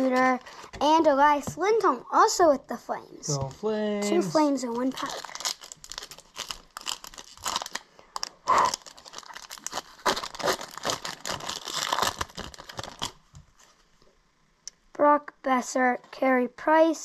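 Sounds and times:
foil wrapper crinkling and tearing: 0:04.7 - 0:13.2.

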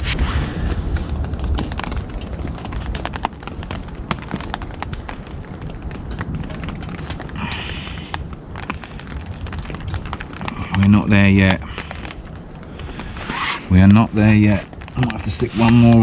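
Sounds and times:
wood fire crackling: 0:00.0 - 0:16.0
sticks rustling: 0:05.6 - 0:16.0.

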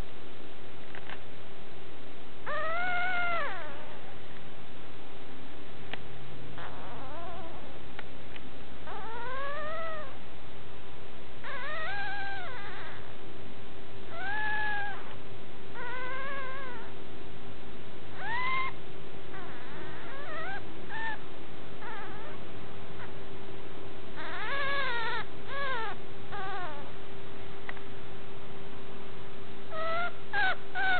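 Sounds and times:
steady low hum: 0:00.0 - 0:30.9
puppy whining howls: 0:02.4 - 0:04.1, 0:06.6 - 0:07.8, 0:08.8 - 0:10.2, 0:11.4 - 0:13.1, 0:14.1 - 0:17.0, 0:18.2 - 0:21.2, 0:21.8 - 0:22.4, 0:24.2 - 0:26.9, 0:29.7 - 0:30.9.

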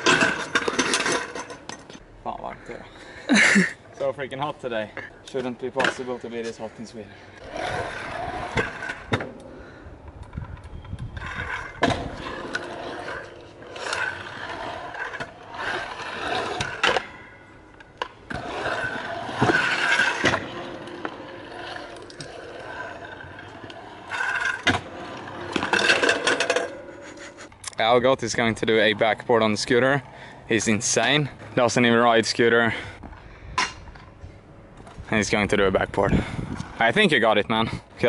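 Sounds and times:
scooter knocks and scrapes: 0:00.0 - 0:02.0, 0:10.8 - 0:17.1, 0:18.0 - 0:22.4, 0:23.0 - 0:26.8
scooter wheels rolling on concrete: 0:00.0 - 0:02.0, 0:02.6 - 0:38.0.

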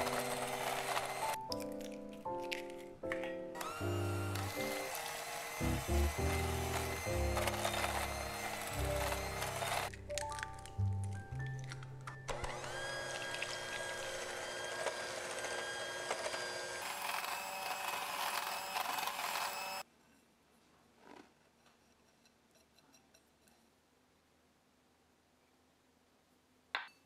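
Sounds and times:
electric hand mixer whirring: 0:00.0 - 0:01.5, 0:03.6 - 0:10.0, 0:12.3 - 0:19.8
background music: 0:00.0 - 0:12.6.

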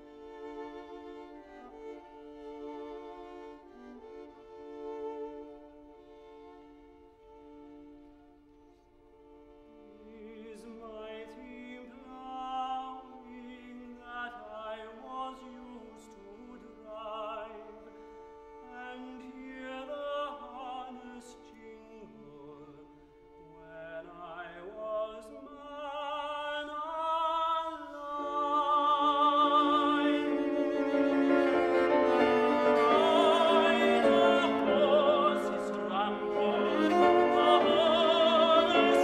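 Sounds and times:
string accompaniment: 0:00.0 - 0:39.0
tenor singing with vibrato: 0:23.4 - 0:39.0.

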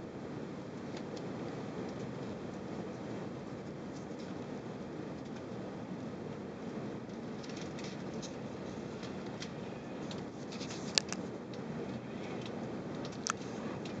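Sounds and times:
airliner cabin rumble and hiss: 0:00.0 - 0:14.0.

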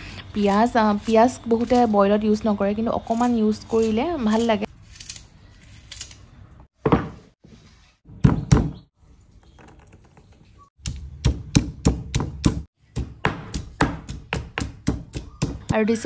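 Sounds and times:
stone pestle pounding in mortar: 0:11.2 - 0:16.0.

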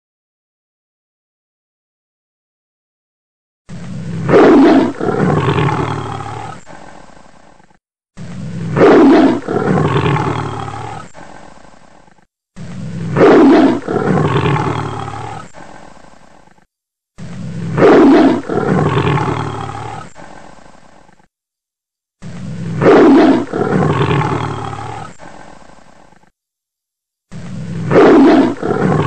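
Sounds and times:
tiger roaring: 0:03.7 - 0:07.1, 0:08.2 - 0:11.6, 0:12.6 - 0:16.4, 0:17.2 - 0:21.2, 0:22.2 - 0:26.2, 0:27.3 - 0:29.0.

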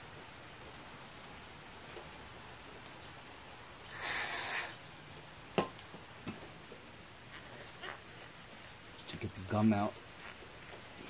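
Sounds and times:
spray can hissing: 0:03.9 - 0:04.8.

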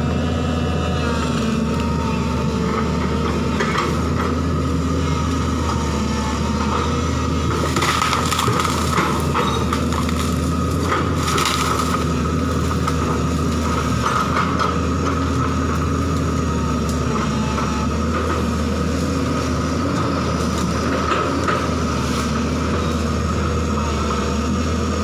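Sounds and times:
excavator diesel engine: 0:00.0 - 0:25.0
branches cracking and snapping: 0:07.5 - 0:17.1.

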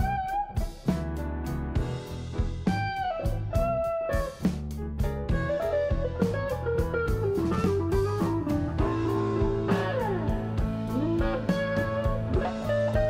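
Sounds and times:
steady drum beat: 0:00.0 - 0:13.0
sliding guitar notes: 0:05.4 - 0:13.0.

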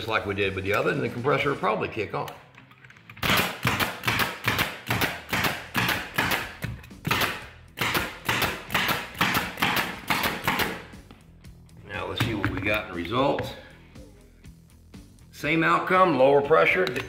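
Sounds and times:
pneumatic stapler firing into wood: 0:03.2 - 0:10.8.

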